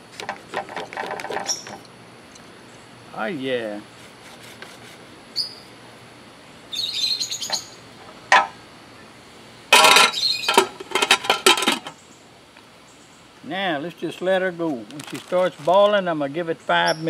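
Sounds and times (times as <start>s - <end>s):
birds chirping: 1.4s - 3.1s, 5.3s - 5.8s, 6.4s - 9.2s, 9.8s - 10.8s
pot lid clanking on pot: 9.7s - 11.9s.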